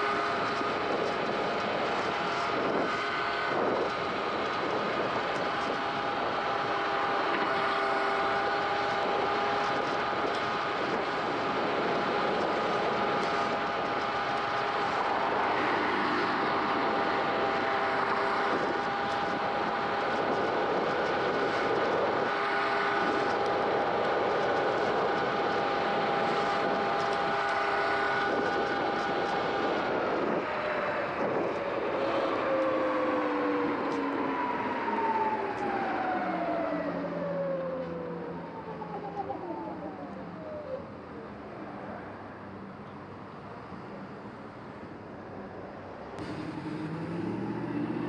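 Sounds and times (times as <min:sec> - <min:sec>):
wind: 0:00.0 - 0:48.0
electric motor whine: 0:46.2 - 0:48.0.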